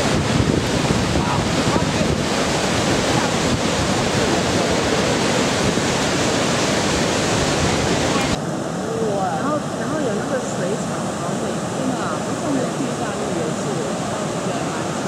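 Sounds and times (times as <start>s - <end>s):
waterfall crashing onto boulders: 0.0s - 8.4s.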